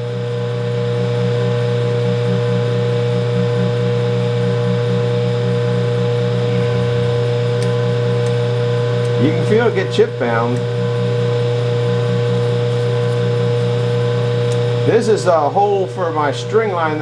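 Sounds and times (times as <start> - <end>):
metal lathe motor hum: 0.0 - 17.0
drill bit high tone: 5.7 - 16.8.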